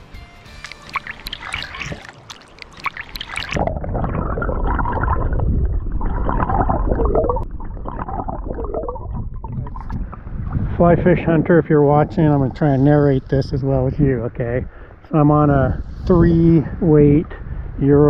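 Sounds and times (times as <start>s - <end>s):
water splashing and dripping: 0.0s - 10.8s
muffled underwater gurgle and bubbles: 0.7s - 14.7s.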